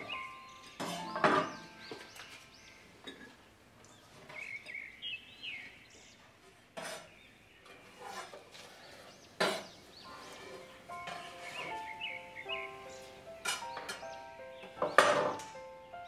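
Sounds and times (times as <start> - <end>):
kitchen utensils knocking: 0.0 - 2.3, 13.4 - 15.6
faint bird chirps: 0.0 - 6.2.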